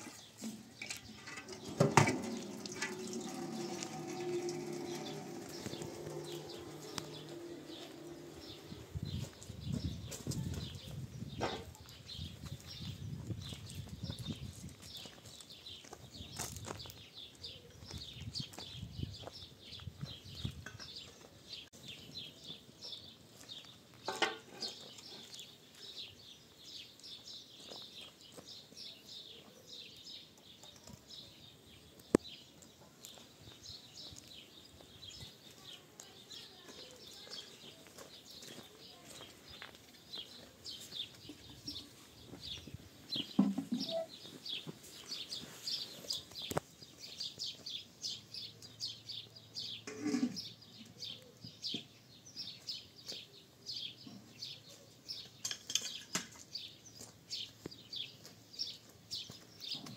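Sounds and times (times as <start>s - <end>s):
small birds chirping: 0.0s - 59.9s.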